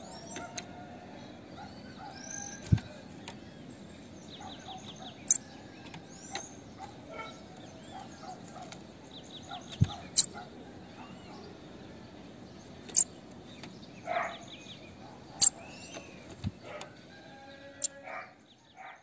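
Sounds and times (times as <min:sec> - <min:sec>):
bird chips and trills: 0:01.8 - 0:11.5, 0:12.7 - 0:16.9.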